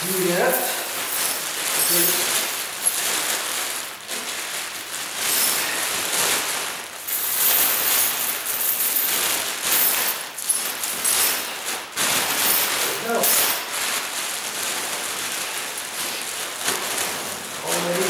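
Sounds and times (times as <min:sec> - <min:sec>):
metal chains clinking: 0:00.0 - 0:04.0, 0:05.1 - 0:06.4, 0:07.0 - 0:14.0
plastic bag crinkling: 0:00.0 - 0:18.0.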